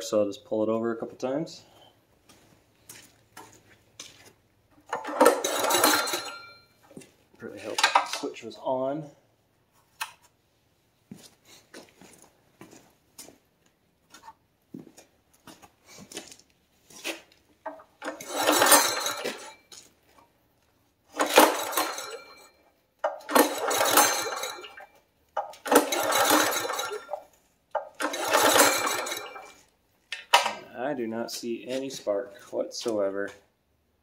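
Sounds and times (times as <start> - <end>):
recoil starter rattling whirr: 4.8 - 6.6, 17.7 - 19.6, 21.1 - 22.4, 23.0 - 24.8, 25.4 - 29.6.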